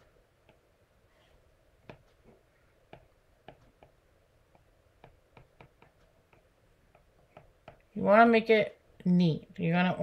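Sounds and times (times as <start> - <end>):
stylus tapping on glass screen: 2.9 - 7.9.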